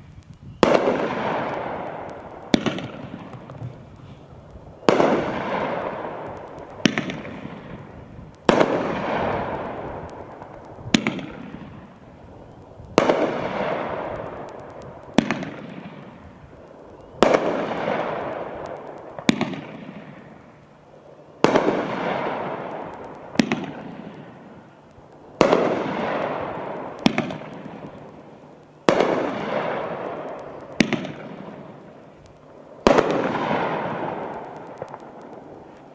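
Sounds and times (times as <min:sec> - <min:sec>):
fireworks bangs: 0:00.6 - 0:20.5, 0:21.4 - 0:24.7, 0:25.4 - 0:35.9.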